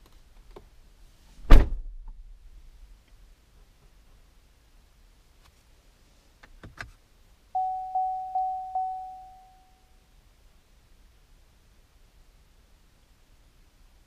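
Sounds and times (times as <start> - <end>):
car warning chime: 7.6 - 9.8.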